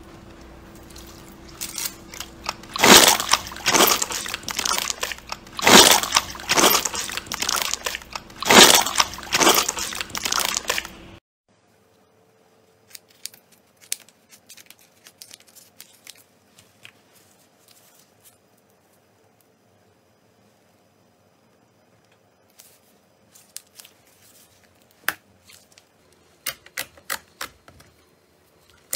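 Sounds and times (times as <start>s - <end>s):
slime squelching: 0.2s - 11.2s.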